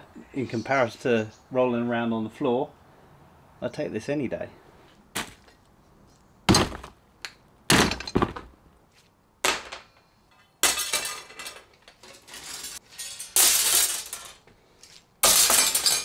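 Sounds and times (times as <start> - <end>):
metal pipes clattering on concrete: 9.5 - 14.4, 15.2 - 16.0.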